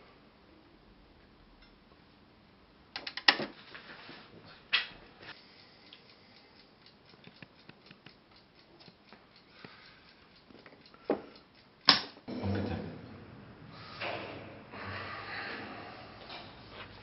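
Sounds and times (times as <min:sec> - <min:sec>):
sharp clicks: 0:02.9 - 0:03.4.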